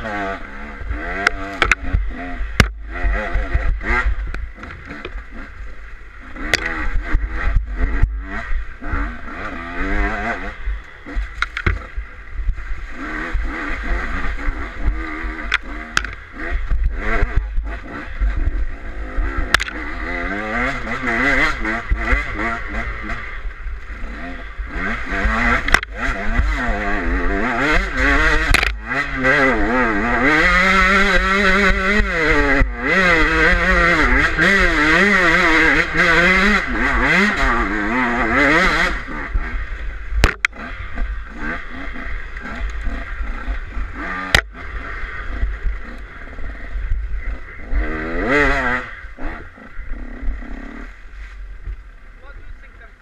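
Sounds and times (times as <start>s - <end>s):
motorcycle engine revving: 0.0s - 53.0s
sharp knocks: 11.4s - 11.9s, 40.2s - 40.6s
wind rumble on microphone: 45.2s - 53.0s.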